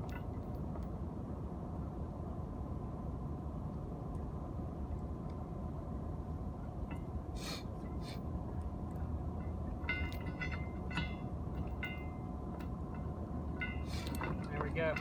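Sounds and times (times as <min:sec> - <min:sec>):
metal chain clinking: 0:00.0 - 0:01.0, 0:07.8 - 0:15.0
steady low rumble: 0:00.0 - 0:15.0.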